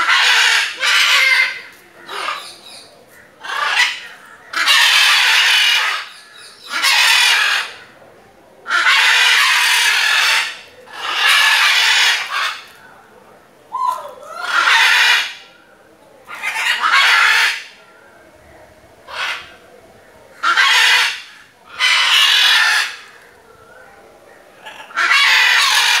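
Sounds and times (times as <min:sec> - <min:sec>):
macaws squawking: 0:00.0 - 0:08.0, 0:08.7 - 0:12.8, 0:13.7 - 0:15.5, 0:16.3 - 0:17.8, 0:19.1 - 0:19.6, 0:20.3 - 0:23.3, 0:24.5 - 0:26.0.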